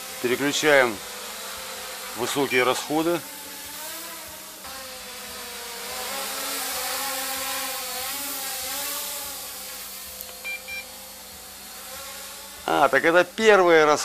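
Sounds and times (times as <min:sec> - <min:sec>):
quadcopter propellers buzzing: 0:00.0 - 0:14.0
short electronic beeps: 0:10.4 - 0:10.9.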